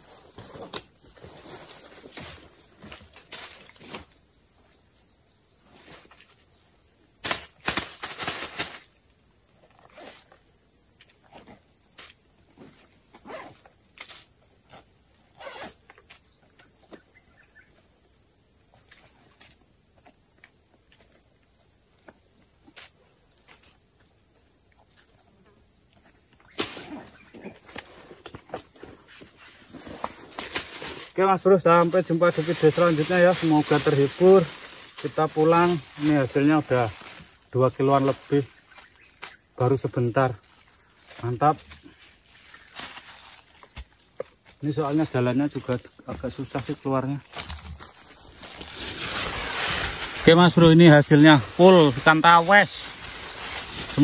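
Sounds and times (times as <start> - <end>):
insect drone: 0.0 - 54.0
backpack rustling and zipping: 13.1 - 13.7, 15.3 - 15.8, 47.4 - 50.3.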